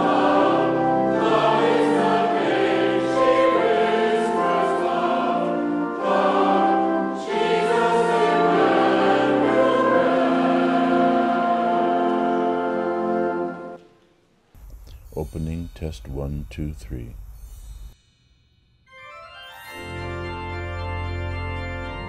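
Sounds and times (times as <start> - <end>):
choir singing a hymn: 0.0 - 13.8.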